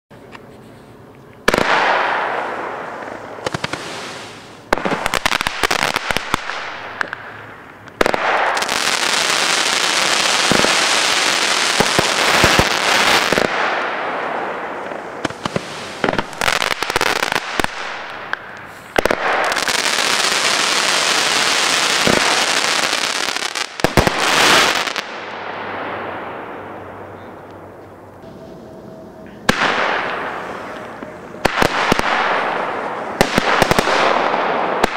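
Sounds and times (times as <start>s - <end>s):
firework bangs: 1.4s - 27.4s, 28.2s - 34.9s
firework crackling: 1.4s - 34.9s
firework hissing: 2.6s - 6.4s, 14.5s - 25.2s.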